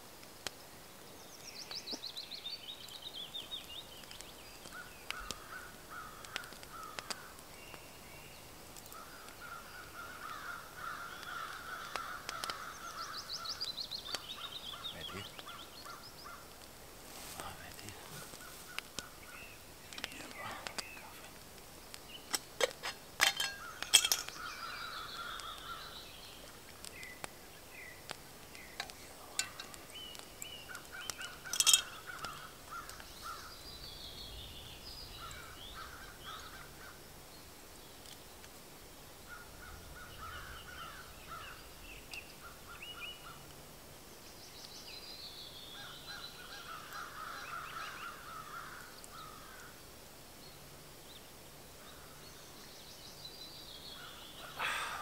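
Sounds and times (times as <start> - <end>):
birds singing and calling: 0.6 - 16.7, 17.4 - 38.5, 39.1 - 55.0
sharp clicks and knocks: 22.3 - 24.4.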